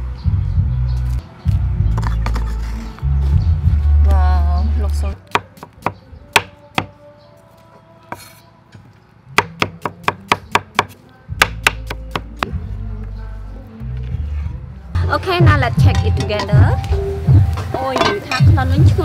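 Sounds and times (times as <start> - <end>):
background music: 0.0 - 19.0
knife chopping on wooden board: 9.4 - 12.5.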